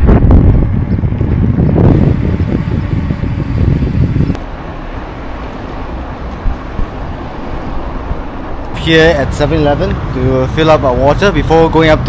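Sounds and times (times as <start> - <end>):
wind rumbling on microphone: 0.0 - 4.7, 6.2 - 8.7
traffic noise: 0.0 - 12.0.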